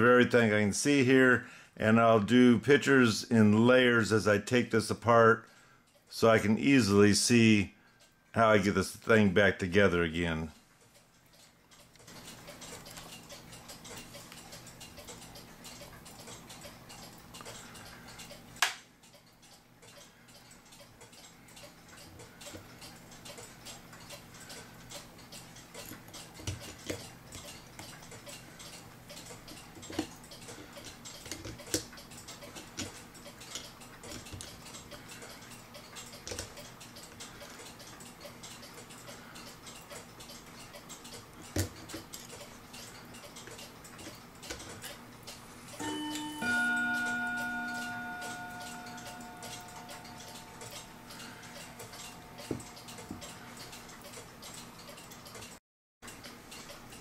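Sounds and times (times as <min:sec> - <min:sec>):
clocks ticking: 0:00.0 - 0:57.0
metal clock parts clicking: 0:09.4 - 0:57.0
bell-like ringing tone: 0:45.8 - 0:52.5.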